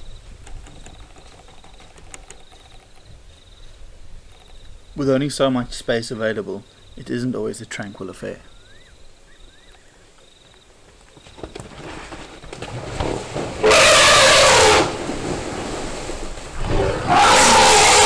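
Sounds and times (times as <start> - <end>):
elephants trumpeting: 13.5 - 15.3, 16.6 - 18.0.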